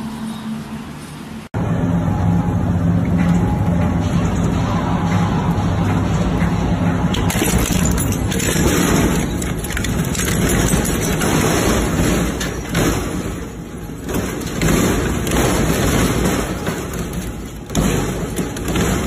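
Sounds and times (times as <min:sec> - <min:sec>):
industrial crusher grinding: 0:01.6 - 0:19.0.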